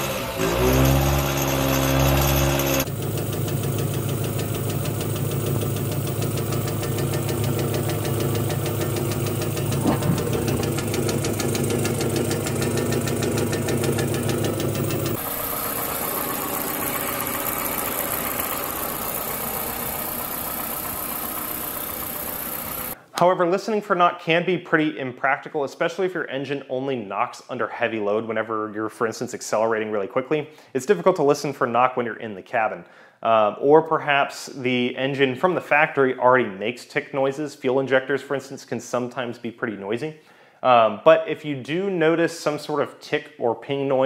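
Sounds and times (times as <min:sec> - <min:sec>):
engine pinging: 0:02.3 - 0:23.0
engine rod knock: 0:09.5 - 0:12.9.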